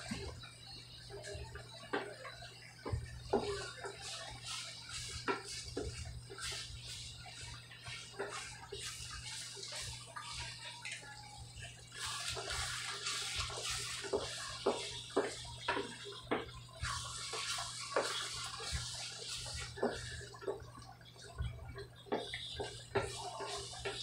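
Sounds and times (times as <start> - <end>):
sauce sizzling: 11.9 - 20.7.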